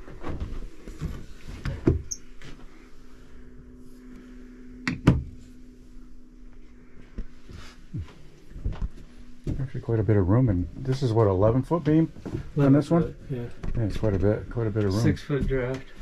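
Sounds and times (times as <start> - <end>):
steady low hum: 0.0 - 16.0
knocks inside boat cabin: 4.9 - 5.4.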